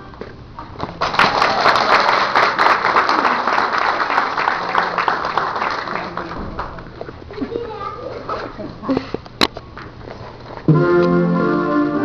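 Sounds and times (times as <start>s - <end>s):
audience applause: 1.0s - 6.8s.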